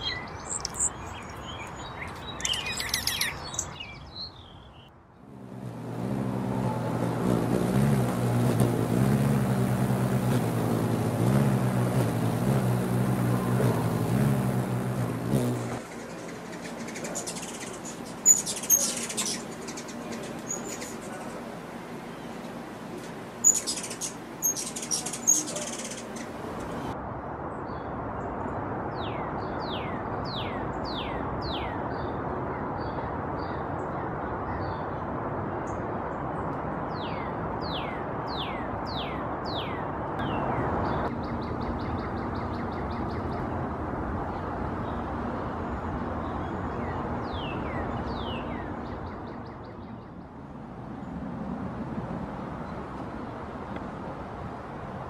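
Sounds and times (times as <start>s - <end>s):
hummingbird chips: 0.5s - 3.7s, 5.7s - 21.5s, 23.0s - 26.9s.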